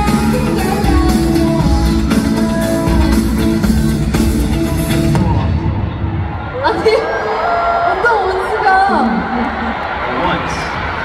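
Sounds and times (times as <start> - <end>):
live pop song with guitar and drums: 0.0 - 5.7.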